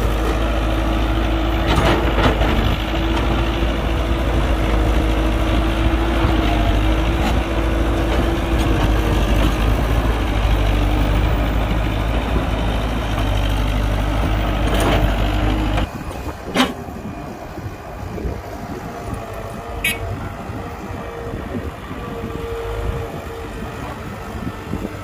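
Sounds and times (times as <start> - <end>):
diesel machinery engine rumbling: 0.0 - 25.0.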